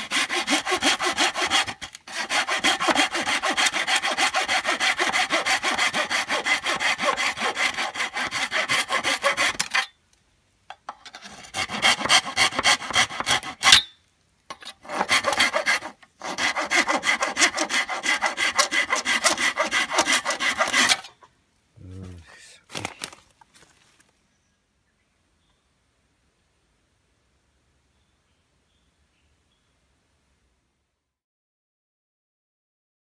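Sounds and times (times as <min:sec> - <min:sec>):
hand saw cutting bamboo: 0:00.0 - 0:09.9, 0:11.1 - 0:13.9, 0:14.6 - 0:21.2.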